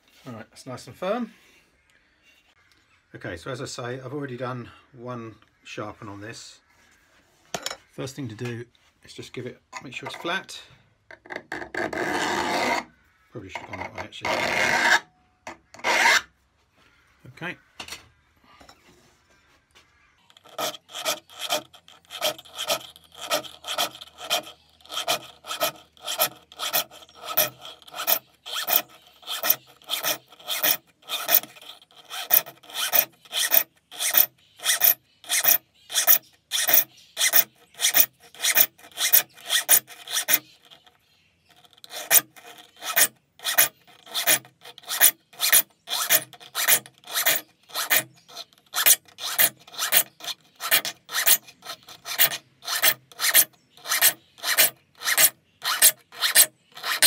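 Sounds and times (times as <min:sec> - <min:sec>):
file scraping saw teeth: 0:11.7 - 0:12.9, 0:13.6 - 0:16.3, 0:20.3 - 0:57.0.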